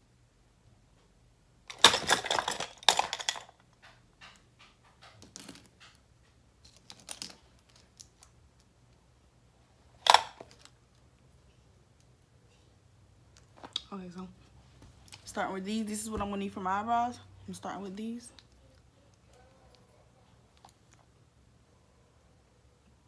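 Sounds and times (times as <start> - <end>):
handling clicks and rustles: 1.7 - 9.1, 9.8 - 13.8, 18.3 - 21.4.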